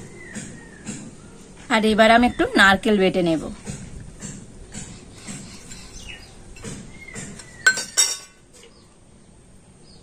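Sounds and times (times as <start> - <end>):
steel bowl clinking on stone: 7.6 - 8.4.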